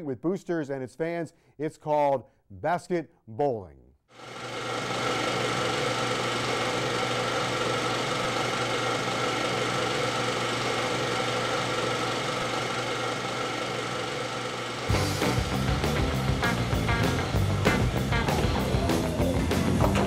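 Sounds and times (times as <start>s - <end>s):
mechanical whirring hum: 4.2s - 20.0s.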